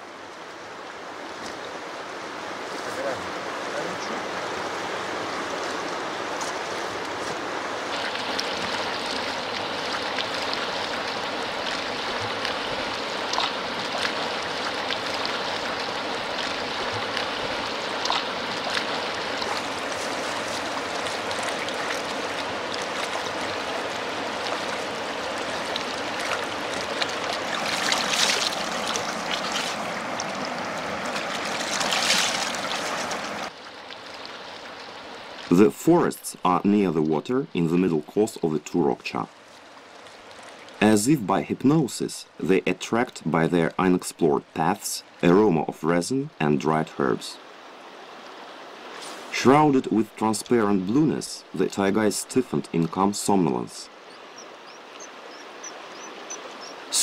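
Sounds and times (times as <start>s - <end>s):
river rushing over stones: 0.0s - 36.2s
water splashes: 0.0s - 57.0s.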